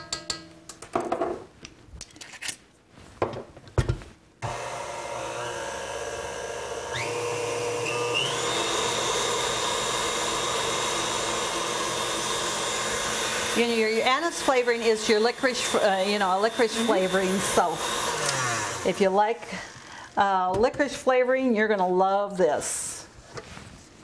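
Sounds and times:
electric mixer running: 0:04.4 - 0:20.1.

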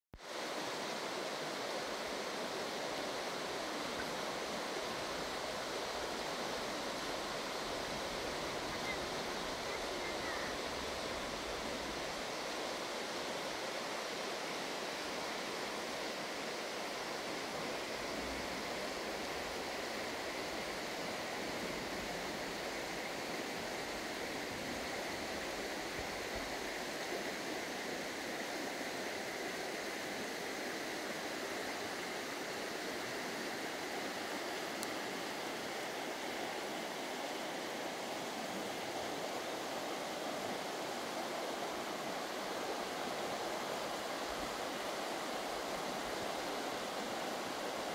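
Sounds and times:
river flowing over pebbles: 0:00.2 - 0:47.9.

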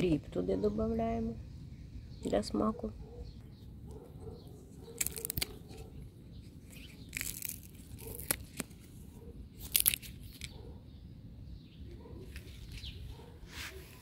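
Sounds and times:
plant stalks snapping: 0:04.8 - 0:05.9, 0:06.6 - 0:10.6.

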